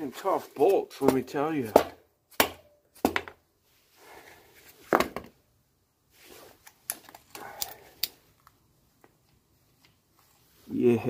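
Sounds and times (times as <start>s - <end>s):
soft rustling: 6.1s - 7.3s, 8.3s - 11.0s.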